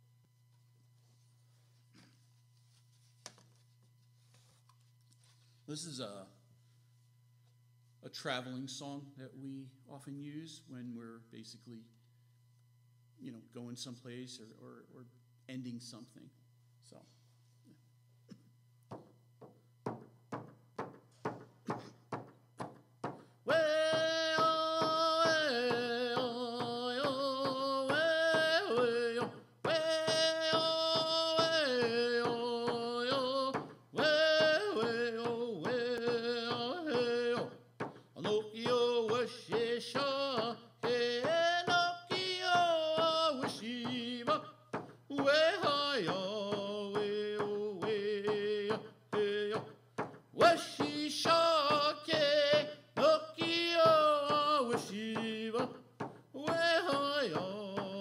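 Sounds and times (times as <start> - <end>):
frame drum beat: 18.9 - 58.0
man singing: 23.4 - 58.0.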